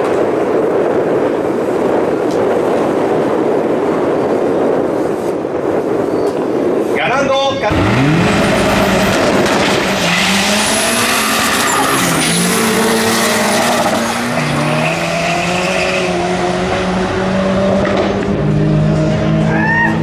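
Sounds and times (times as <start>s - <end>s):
racing car engines accelerating: 7.7s - 20.0s.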